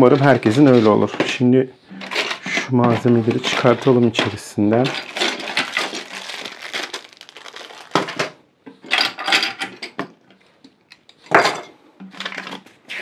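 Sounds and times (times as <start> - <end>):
plastic packaging rustling: 2.0 - 9.7.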